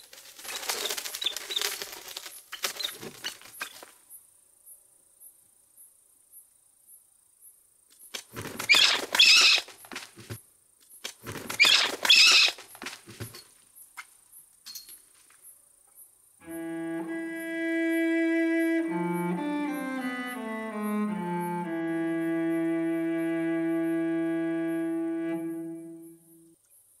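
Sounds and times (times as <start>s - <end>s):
birds commotion: 11.3s - 13.3s
cello music: 16.4s - 26.5s.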